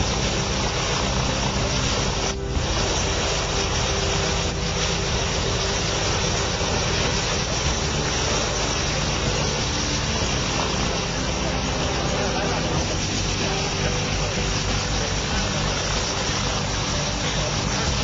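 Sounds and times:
engine running steadily: 0.0 - 18.0.

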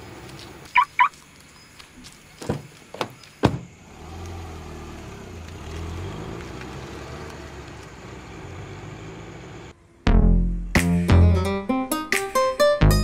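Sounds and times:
car engine humming: 0.0 - 10.2
car door shutting: 2.4 - 3.8.

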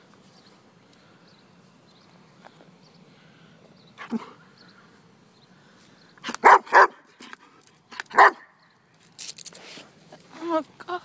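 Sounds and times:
dog barking: 6.3 - 7.0, 8.1 - 8.5.

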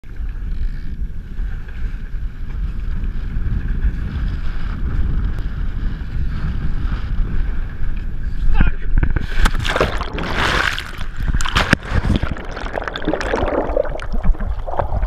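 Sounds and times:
wind buffeting microphone: 0.1 - 15.0
water rushing past: 9.4 - 15.0.

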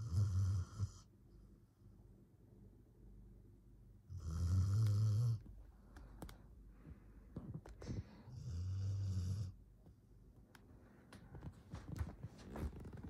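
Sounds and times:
dog snoring: 0.0 - 1.1, 4.1 - 5.4, 8.3 - 9.6.

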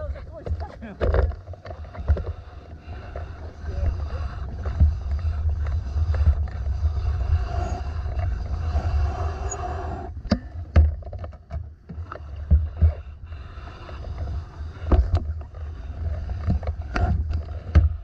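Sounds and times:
wind buffeting microphone: 0.0 - 10.9.

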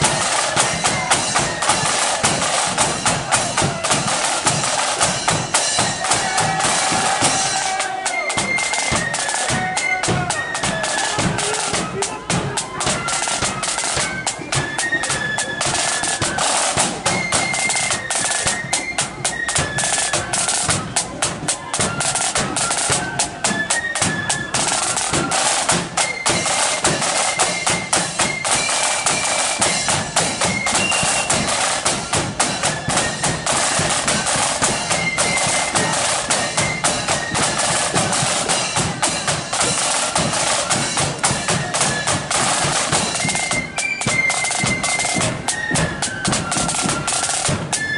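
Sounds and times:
bass drum beats: 0.0 - 8.6
flutes playing melody: 0.0 - 47.9
snare drum strokes: 0.0 - 47.9.

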